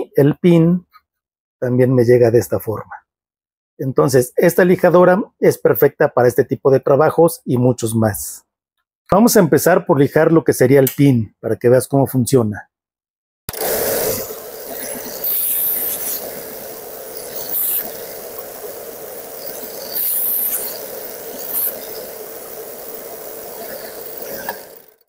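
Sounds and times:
belt sander motor running: 0:13.5 - 0:25.0
wood pressed against sanding belt: 0:13.5 - 0:25.0.

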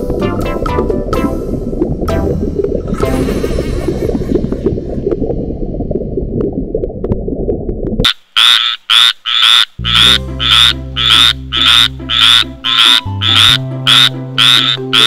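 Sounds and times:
soft background music: 0:00.0 - 0:03.8, 0:09.8 - 0:15.0
low rumble: 0:00.0 - 0:08.1
tree frog croaking: 0:08.1 - 0:15.0.

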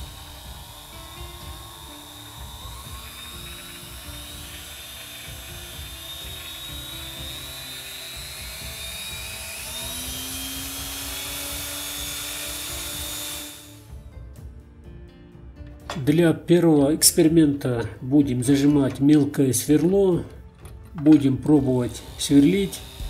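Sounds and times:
bench drill motor whining: 0:00.0 - 0:14.0, 0:19.8 - 0:23.0.

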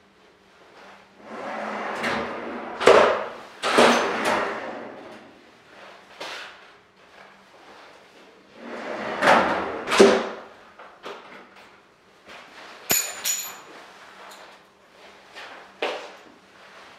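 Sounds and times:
filing cabinet drawer rolling shut: 0:01.2 - 0:05.4, 0:08.5 - 0:10.5.

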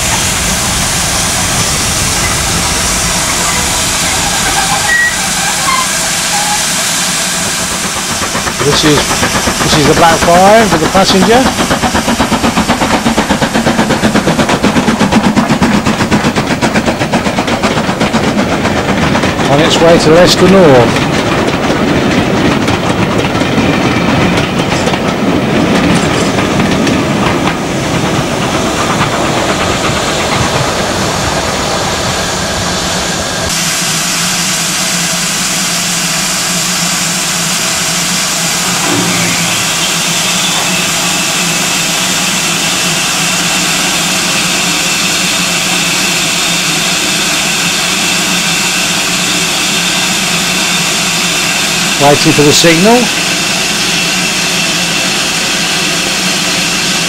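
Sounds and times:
steam locomotive hissing: 0:00.0 - 0:57.0
train wheels clattering over rail joints: 0:02.0 - 0:32.2.

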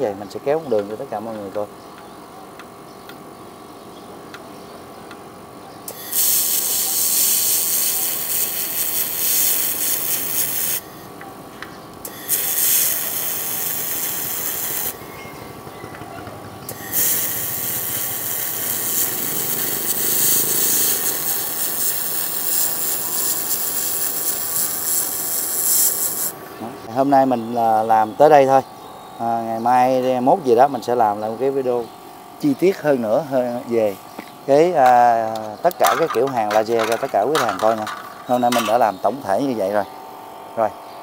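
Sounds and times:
laser welder hissing sizzle: 0:05.9 - 0:11.1, 0:12.0 - 0:15.1, 0:16.7 - 0:28.6, 0:36.3 - 0:39.8.

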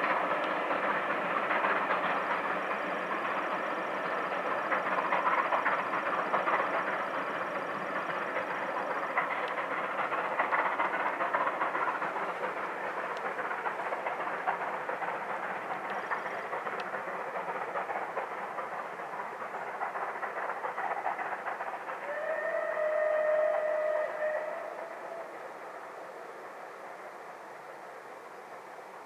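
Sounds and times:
steam locomotive exhaust: 0:00.0 - 0:29.0
train wheels on rail: 0:00.0 - 0:29.0
steam locomotive whistle: 0:22.0 - 0:26.1.

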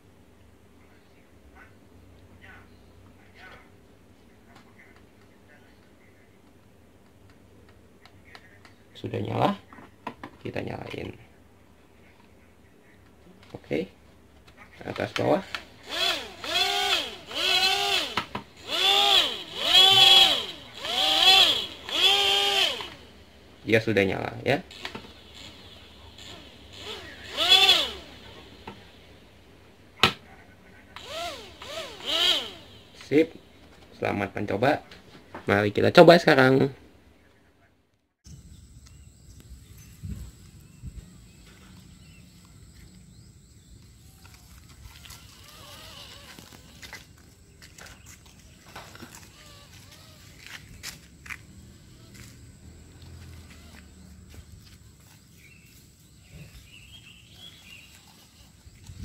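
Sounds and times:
small electric motors whining: 0:15.5 - 0:23.3, 0:24.6 - 0:29.0, 0:31.0 - 0:33.2, 0:43.9 - 0:55.9, 0:57.3 - 0:59.0
wind rumble on microphone: 0:38.3 - 0:41.2.

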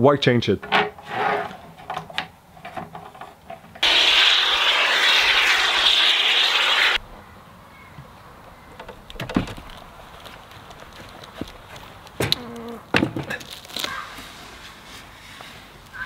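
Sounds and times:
aerosol foam spraying hiss: 0:03.8 - 0:07.0.

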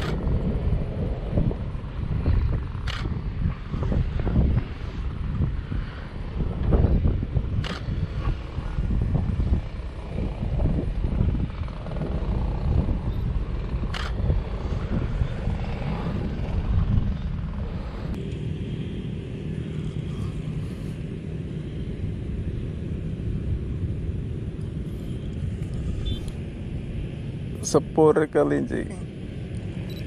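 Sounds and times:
wind on microphone: 0:00.0 - 0:18.2
jet airliner engine rumble: 0:00.0 - 0:30.0
sharp click: 0:07.6 - 0:07.9.

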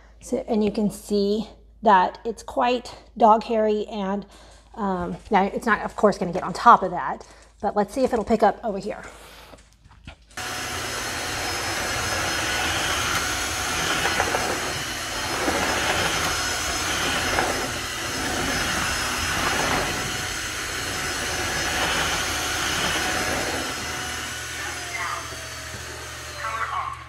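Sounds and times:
vacuum mop motor hiss: 0:10.4 - 0:27.0.

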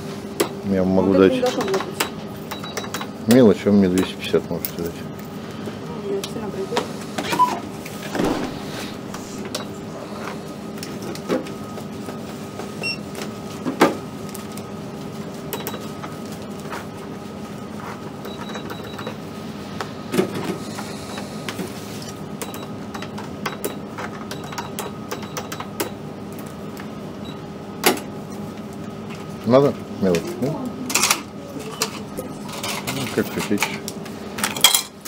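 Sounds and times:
electrical hum: 0:00.0 - 0:35.0
cash register clicks and taps: 0:22.4 - 0:26.0.

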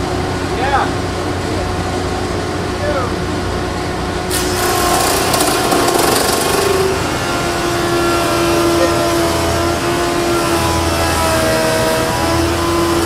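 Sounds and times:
jointer machine whine: 0:04.1 - 0:13.0.

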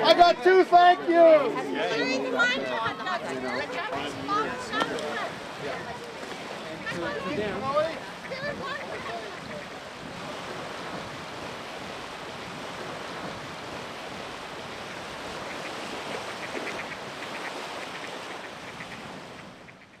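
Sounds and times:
small waves lapping on shore: 0:00.0 - 0:20.0
wind: 0:00.0 - 0:20.0
ducks quacking: 0:02.8 - 0:11.2, 0:14.6 - 0:20.0.

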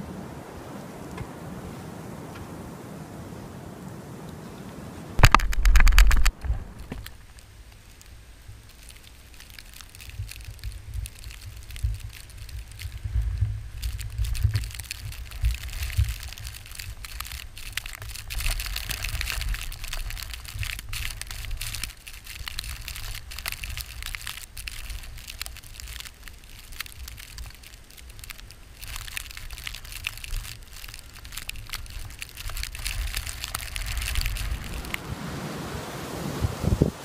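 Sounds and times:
dense irregular crackle: 0:05.2 - 0:35.1
blizzard wind buffeting microphone: 0:09.5 - 0:37.0.

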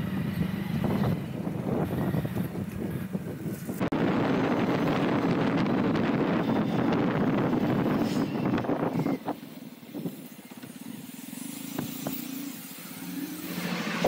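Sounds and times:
wind noise on microphone: 0:00.0 - 0:10.4
motorcycle engine: 0:00.0 - 0:14.0.

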